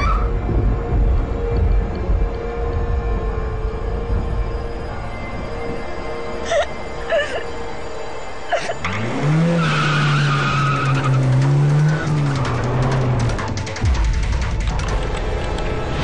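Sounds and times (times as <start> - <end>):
background music: 0.0 - 16.0
tyres squealing: 8.5 - 13.2
car engine revving: 8.8 - 16.0.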